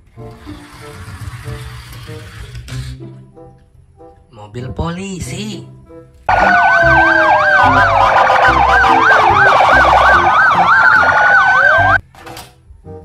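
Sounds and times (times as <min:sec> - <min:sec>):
police sirens wailing and yelping: 0:06.3 - 0:12.0.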